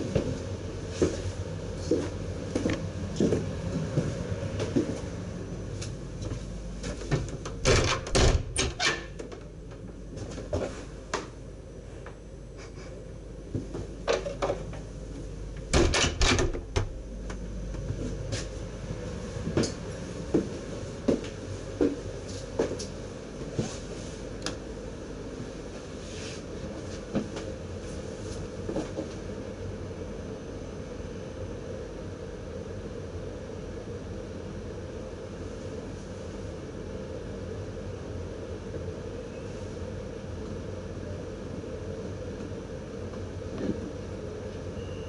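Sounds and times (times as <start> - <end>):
steady low equipment hum: 0.0 - 45.0
doors clunking open and shut: 7.0 - 9.6, 15.6 - 17.0.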